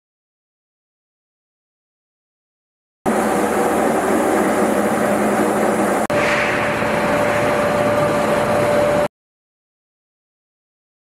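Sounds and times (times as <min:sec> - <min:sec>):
centrifugal fans running: 0:03.1 - 0:09.1
industrial machinery running: 0:03.1 - 0:09.1
thin even whine: 0:03.1 - 0:09.1.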